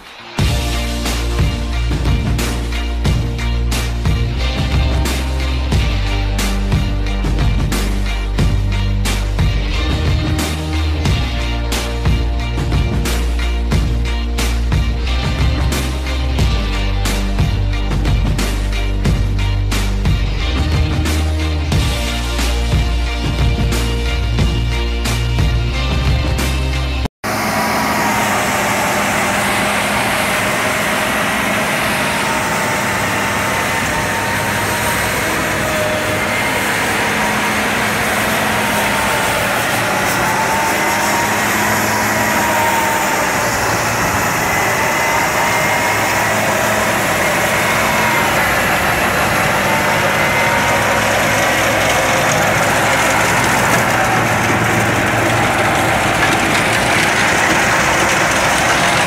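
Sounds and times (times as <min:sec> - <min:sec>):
tractor running: 0:00.0 - 0:59.0
wavering whine: 0:27.3 - 0:59.0.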